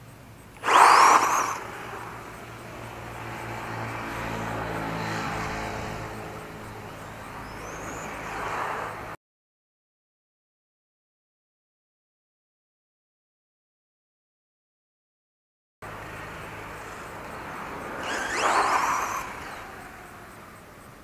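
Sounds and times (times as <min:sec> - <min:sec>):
rc truck motor whine: 0:00.0 - 0:09.2, 0:15.8 - 0:21.0.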